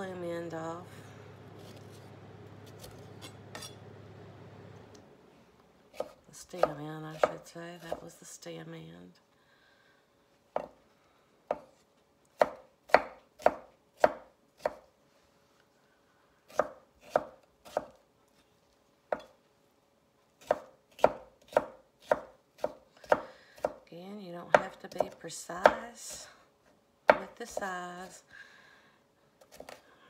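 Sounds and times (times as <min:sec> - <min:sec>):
knife chopping on wooden board: 0:05.9 - 0:08.0, 0:11.5 - 0:11.7, 0:12.4 - 0:14.8, 0:16.5 - 0:18.0, 0:20.4 - 0:23.8.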